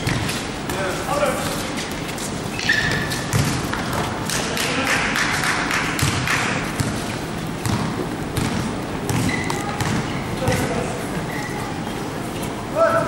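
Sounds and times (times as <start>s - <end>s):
basketball bouncing on court: 2.6s - 4.2s, 5.9s - 10.9s.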